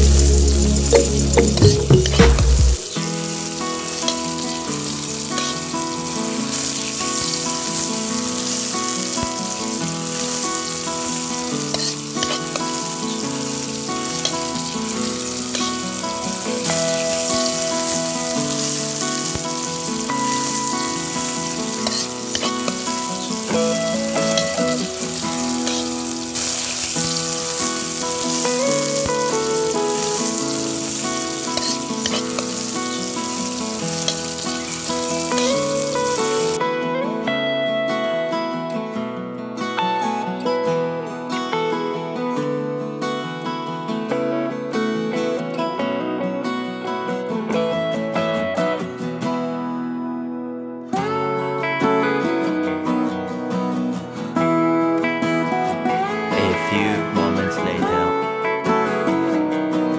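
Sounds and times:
eggs sizzling in oil: 0.0 - 36.6.

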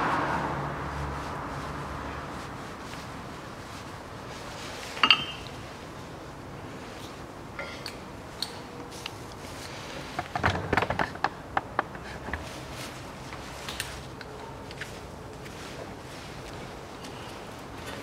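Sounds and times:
metal tools clinking and knocking: 5.0 - 5.6.

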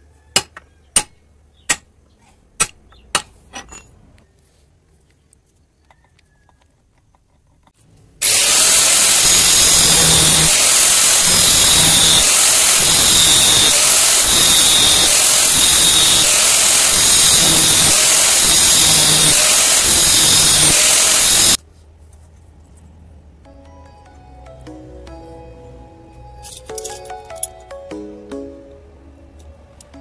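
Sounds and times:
angle grinder cutting metal: 8.2 - 21.6.

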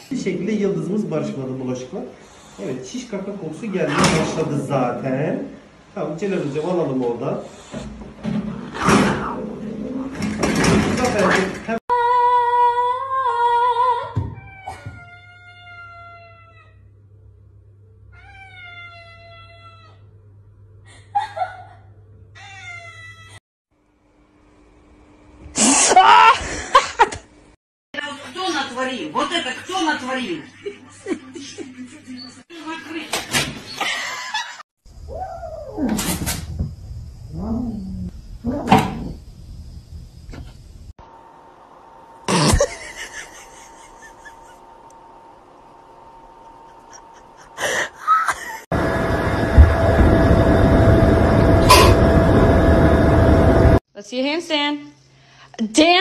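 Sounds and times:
cat meowing: 14.4 - 16.8, 18.1 - 20.0.

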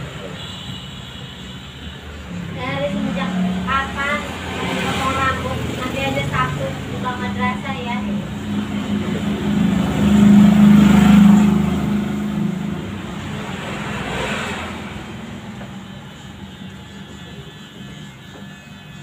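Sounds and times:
electric hair clipper buzzing: 14.9 - 19.0.

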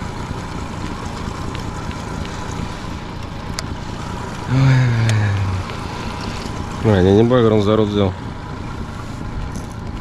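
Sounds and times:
outboard motor running: 0.0 - 10.0
water and wind noise: 0.0 - 10.0
man's drawn-out vocal sound: 4.5 - 5.7.

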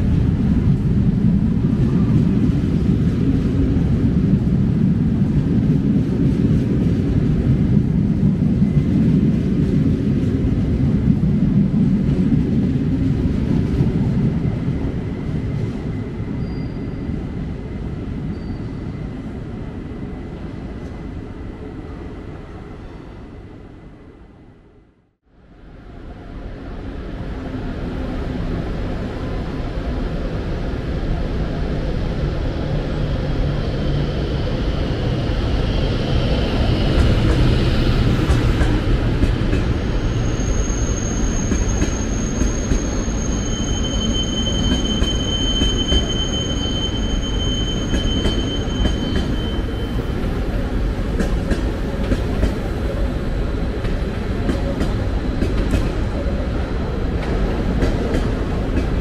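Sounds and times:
train wheels rumbling on rail: 0.0 - 23.9, 25.6 - 59.0
high wheel squeal: 39.8 - 50.5.

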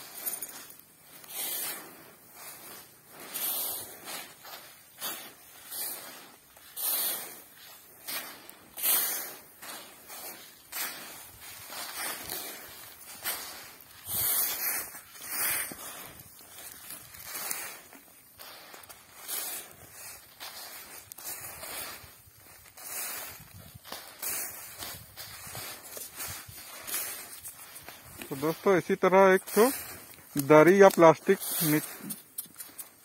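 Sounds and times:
hands mixing granules rustling: 0.0 - 33.0.

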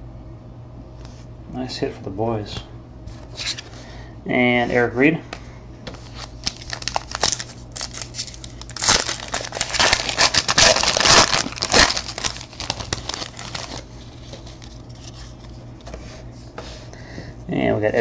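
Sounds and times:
foil wrapper tearing and crinkling: 6.0 - 15.5.

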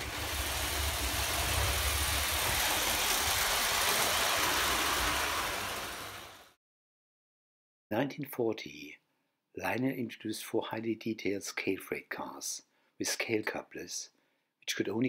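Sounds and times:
toy trains whirring on metal rails: 0.0 - 6.6.

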